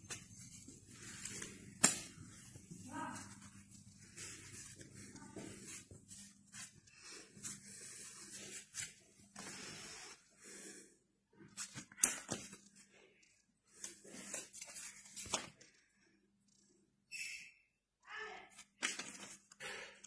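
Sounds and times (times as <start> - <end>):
paper banknotes rustling: 0.0 - 6.8, 13.8 - 15.6
crisp paper snap: 1.3 - 2.1, 18.8 - 19.4.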